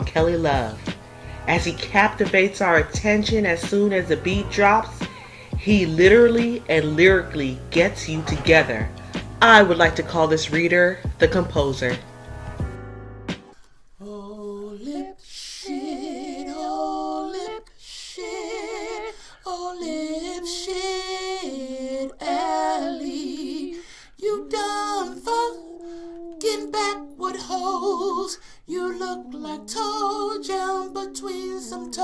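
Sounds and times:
man singing in a high voice: 14.0s - 32.0s.

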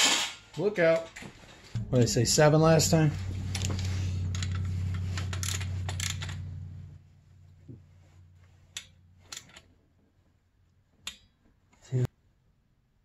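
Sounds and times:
low steady hum: 1.8s - 11.2s.

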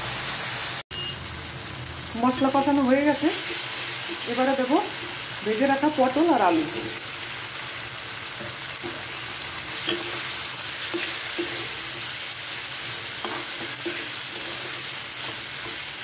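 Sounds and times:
vegetables sizzling in a pan: 0.0s - 16.0s
metal spatula scraping a pan: 8.3s - 16.0s.

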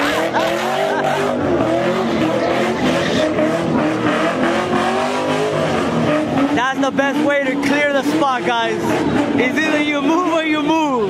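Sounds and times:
car engine at high revs: 0.0s - 11.0s
tires squealing: 0.0s - 11.0s.

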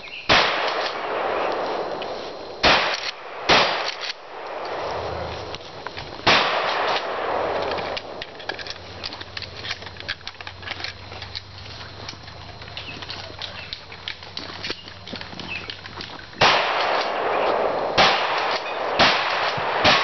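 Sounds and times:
rustling and small ticks: 0.0s - 20.0s
shotgun shots echoing: 0.3s - 5.5s, 6.2s - 9.1s, 16.4s - 20.0s.

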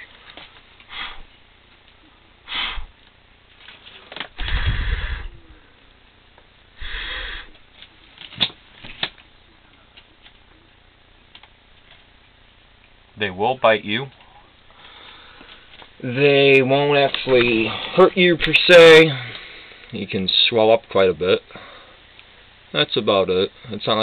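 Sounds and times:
breathing close to microphone: 2.5s - 3.0s, 4.4s - 5.8s, 6.8s - 7.6s, 14.7s - 15.8s
person sniffing: 2.5s - 3.0s, 6.8s - 7.6s.

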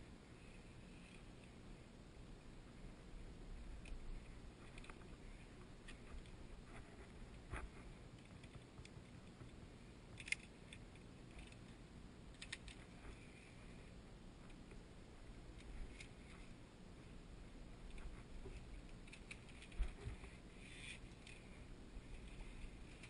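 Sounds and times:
faint low rumble: 0.0s - 23.0s
carabiners clicking on steel cable: 10.2s - 11.7s.

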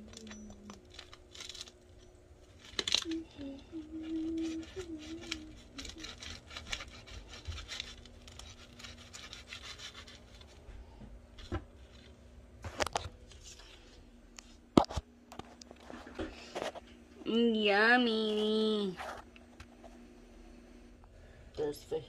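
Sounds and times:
knife sawing through crisp food: 4.0s - 10.6s.

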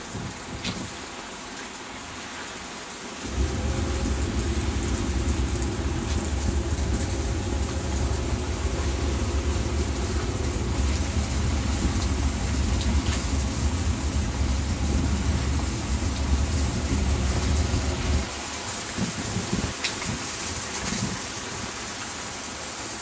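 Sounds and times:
shower spraying water: 0.0s - 23.0s
loud low rumble with hum: 3.2s - 18.3s, 19.0s - 19.8s.

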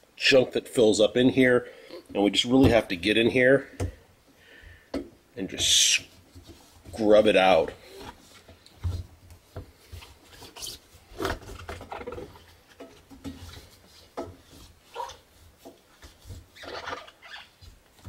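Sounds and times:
cloth scrubbing rubber gasket: 13.4s - 17.8s.

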